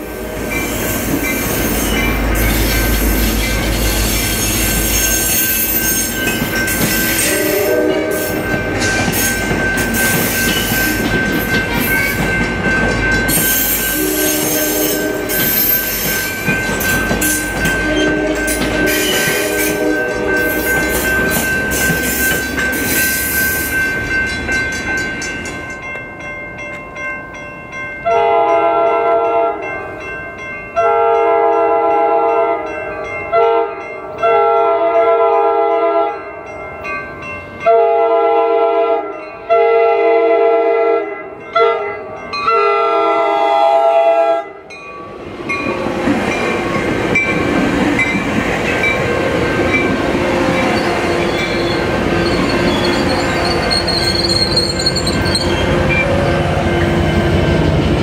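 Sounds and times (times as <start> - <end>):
train wheels on rails: 0.0 - 27.0, 44.5 - 58.0
train horn blasts: 7.0 - 8.5, 13.3 - 15.9, 17.2 - 21.1, 28.0 - 29.7, 30.8 - 32.7, 33.3 - 36.2, 37.6 - 44.7, 49.7 - 54.2, 55.4 - 57.4.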